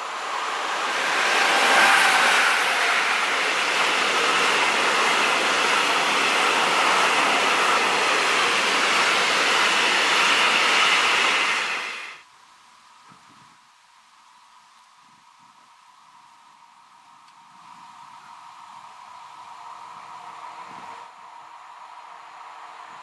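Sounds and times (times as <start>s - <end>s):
freight train wheels rolling on rails: 0.0s - 12.2s.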